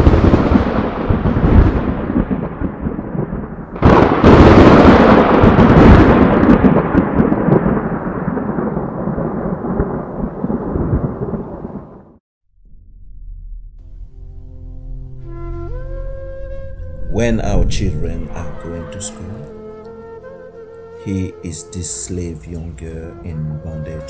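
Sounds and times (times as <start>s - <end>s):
thunder rumbling and cracking: 0.0s - 12.2s, 16.8s - 19.9s.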